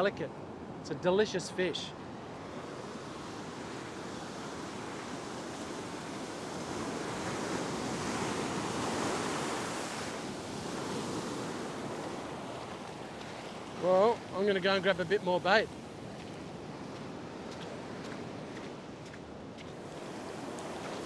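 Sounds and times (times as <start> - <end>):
ocean surf breaking on beach: 0.0 - 21.0.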